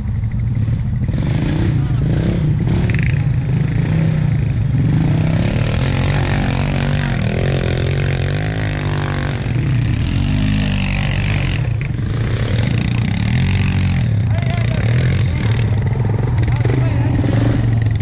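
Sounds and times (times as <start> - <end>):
atv engine idling: 0.0 - 18.0
atv engines revving: 0.0 - 18.0.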